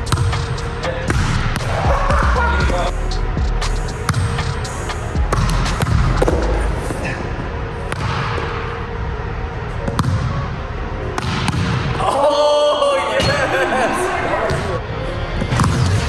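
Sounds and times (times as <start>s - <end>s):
volleyball slaps and thuds: 4.1s - 4.3s, 11.2s - 11.9s.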